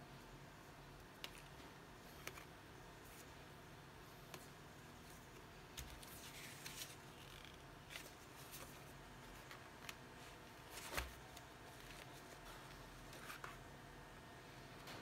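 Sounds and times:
paper and plastic rustling: 0:05.8 - 0:07.2, 0:07.8 - 0:13.6.

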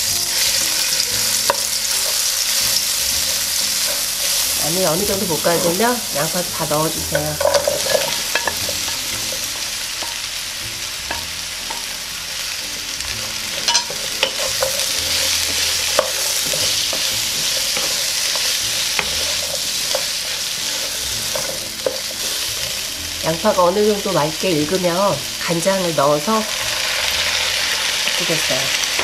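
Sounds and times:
onions sizzling in hot oil: 0:00.0 - 0:29.0
spatula tapping and scraping pan: 0:00.4 - 0:04.5, 0:07.0 - 0:10.2, 0:13.5 - 0:22.8.

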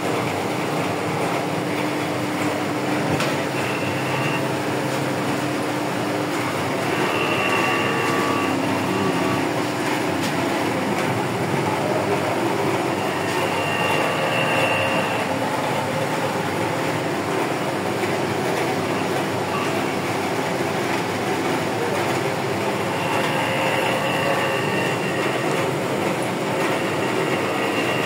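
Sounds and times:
thin high whine: 0:03.2 - 0:04.5, 0:06.5 - 0:10.8, 0:11.7 - 0:16.8, 0:22.8 - 0:25.6, 0:26.6 - 0:28.0
router spindle cutting metal: 0:03.2 - 0:04.6, 0:05.6 - 0:28.0.

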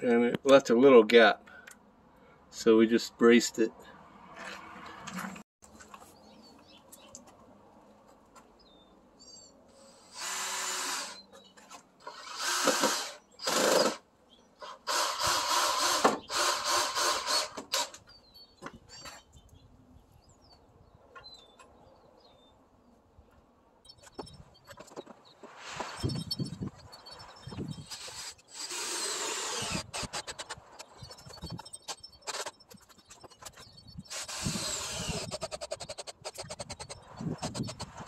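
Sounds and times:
cordless drill driving screws: 0:09.9 - 0:11.2, 0:12.0 - 0:14.0, 0:14.6 - 0:18.0, 0:27.8 - 0:30.9, 0:34.1 - 0:36.6.

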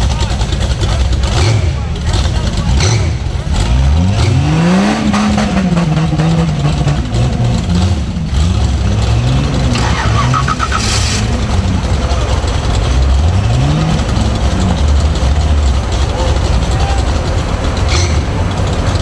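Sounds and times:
engine revving: 0:00.0 - 0:19.0
short hiss: 0:09.8 - 0:11.4.

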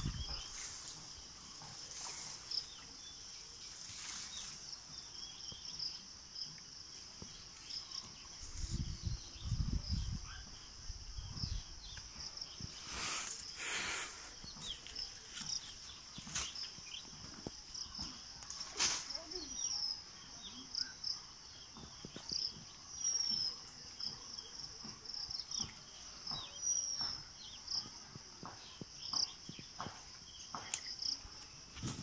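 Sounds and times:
leaves and branches rustling: 0:00.0 - 0:05.8, 0:06.5 - 0:19.8, 0:29.8 - 0:32.0
insect chirps: 0:00.0 - 0:32.0
insects droning: 0:00.0 - 0:32.0.

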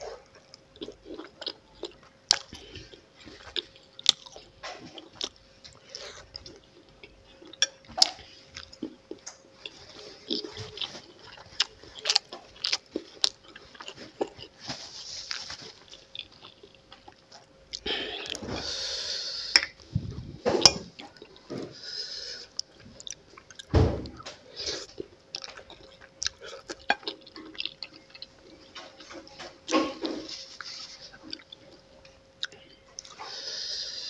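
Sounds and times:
person chewing noodles: 0:00.0 - 0:34.0.

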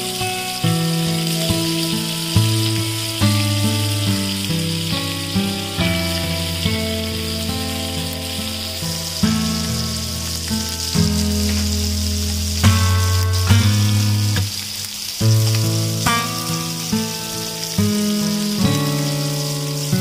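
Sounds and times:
background music of held notes: 0:00.0 - 0:14.3
eggs sizzling in oil: 0:00.0 - 0:20.0.

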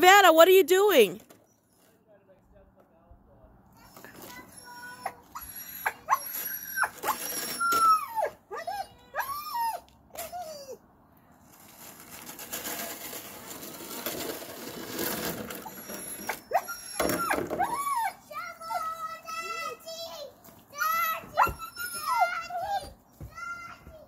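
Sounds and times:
snow shovel scraping asphalt: 0:06.1 - 0:07.9, 0:11.4 - 0:16.4.

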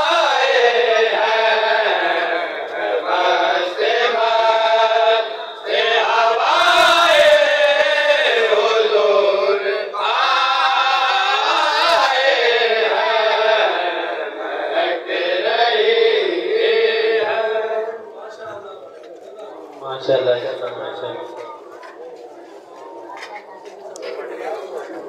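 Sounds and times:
men chanting in unison: 0:00.0 - 0:18.6.

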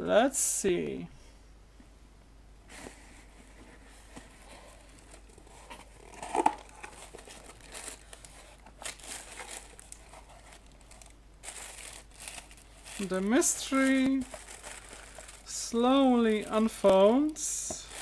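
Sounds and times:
plastic packaging crinkling: 0:04.6 - 0:18.0
packing tape tearing: 0:06.0 - 0:15.5.

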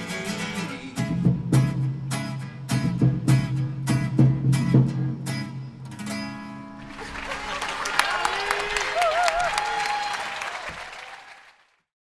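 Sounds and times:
guitar strumming: 0:00.0 - 0:07.0.

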